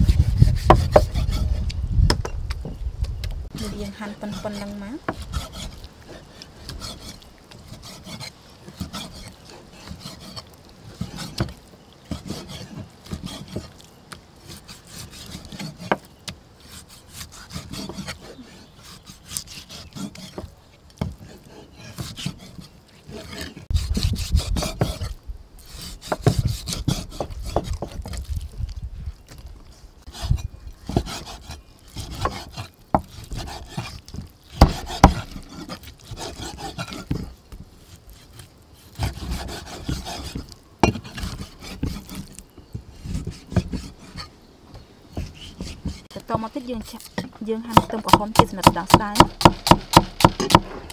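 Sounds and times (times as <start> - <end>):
cleaver chopping meat on wood: 26.0 - 28.2, 30.9 - 37.3, 39.0 - 42.3, 47.1 - 50.9.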